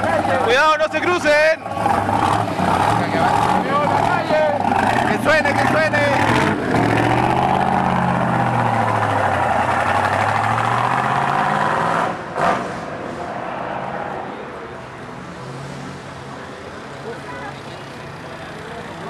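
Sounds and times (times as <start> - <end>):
car engine pulling away: 1.6 - 13.3.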